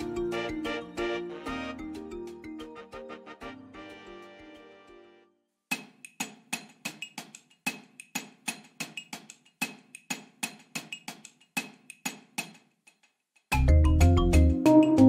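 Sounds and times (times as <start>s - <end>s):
dry clicking percussion: 5.7s - 14.4s.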